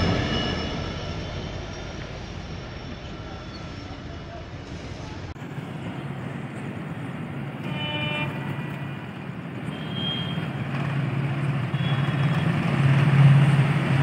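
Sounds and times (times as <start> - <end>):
diesel train engine hum: 0.0 - 14.0
train horn toot: 7.6 - 10.5, 11.7 - 12.5.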